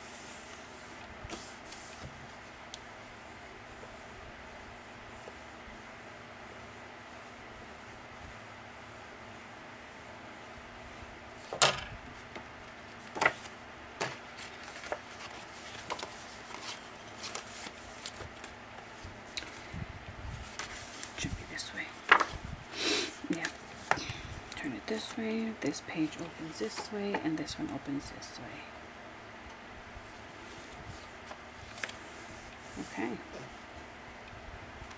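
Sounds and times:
light taps and paper rustles: 12.3s - 19.6s, 20.4s - 21.3s, 22.0s - 22.4s, 30.6s - 32.6s.

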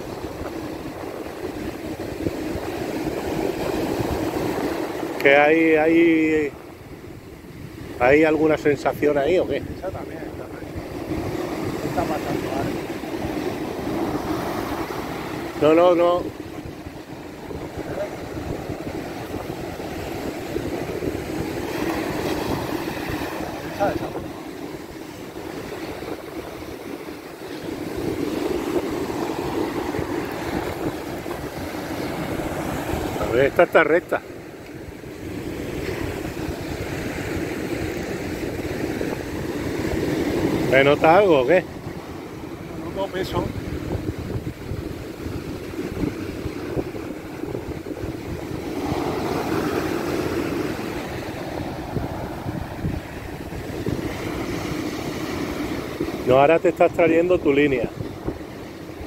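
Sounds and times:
sea surf breaking on sand: 0.0s - 59.0s
wind buffeting microphone: 0.0s - 59.0s.

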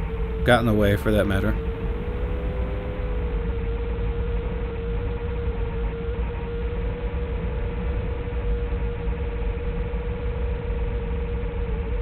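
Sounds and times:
drone motors whining: 0.0s - 4.8s.

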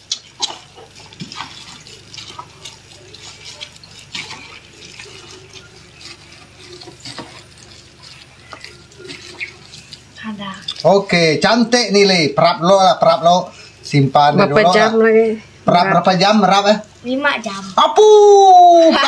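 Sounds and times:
wet squelching of raw meat: 0.0s - 11.5s.

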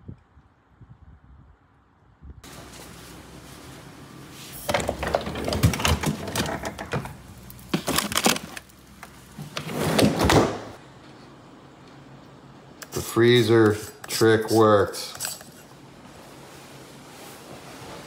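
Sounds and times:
plastic bag rustling: 2.5s - 10.2s
freezer drawer opening: 4.5s - 8.7s, 9.4s - 10.8s
boxes knocking and clattering: 4.6s - 8.6s, 9.4s - 10.8s.

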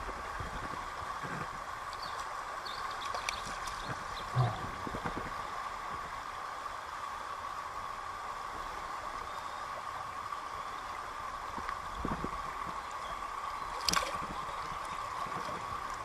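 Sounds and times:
water splashes: 0.0s - 6.2s, 9.9s - 16.0s
stream flowing over stones: 0.0s - 16.0s.

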